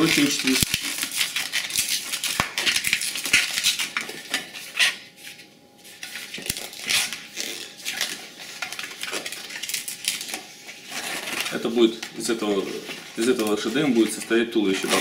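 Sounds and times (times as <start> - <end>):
balloon squeaking: 6.5 - 8.1, 10.8 - 13.9.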